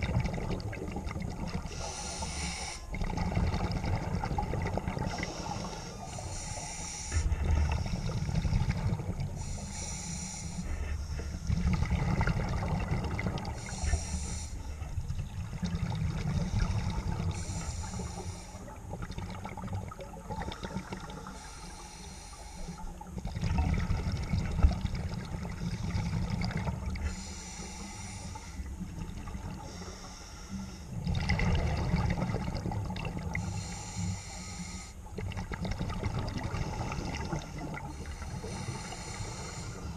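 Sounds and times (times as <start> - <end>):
exhaled bubbles rumbling: 0.0 - 2.3, 2.9 - 6.4, 7.1 - 9.9, 10.7 - 21.6, 22.7 - 30.0, 30.9 - 33.8, 35.0 - 39.9
diver breathing through regulator: 1.6 - 3.0, 5.0 - 12.0, 13.5 - 15.0, 16.2 - 18.8, 20.5 - 23.1, 27.0 - 28.8, 29.5 - 31.0, 33.4 - 35.2, 36.5 - 39.9.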